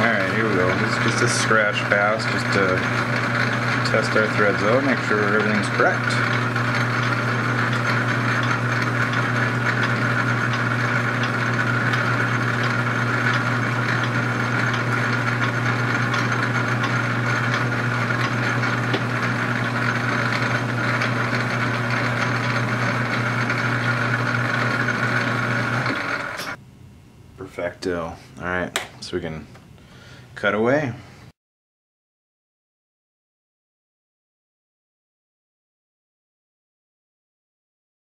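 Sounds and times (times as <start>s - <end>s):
lathe motor humming: 0.0s - 26.6s.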